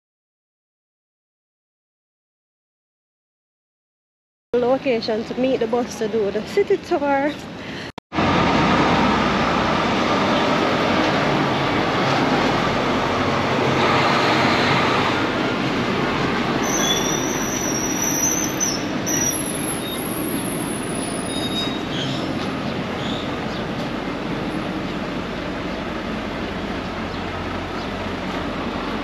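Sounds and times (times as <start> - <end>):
transit vehicle rumble: 4.6 - 29.0
high-pitched squeal: 16.6 - 23.4.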